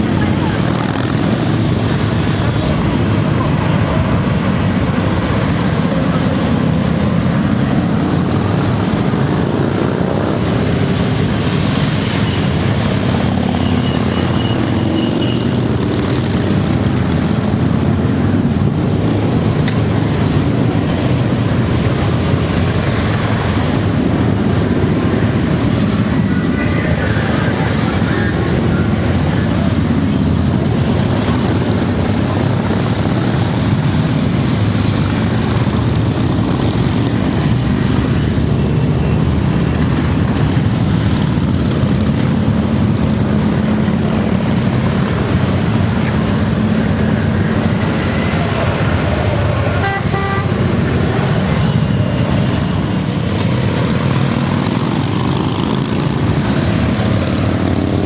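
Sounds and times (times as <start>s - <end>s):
motorcycle engines rumbling past: 0.0s - 58.0s
horn beeps: 49.8s - 50.7s.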